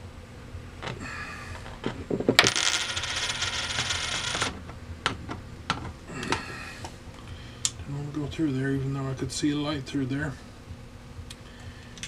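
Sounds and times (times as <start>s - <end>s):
coin rattling: 2.2s - 4.6s.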